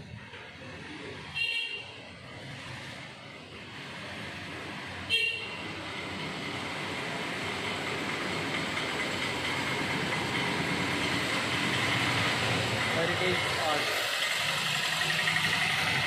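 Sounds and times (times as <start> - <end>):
street traffic noise: 0.0 - 16.0
vehicle horn toot: 1.4 - 1.9, 5.1 - 5.6.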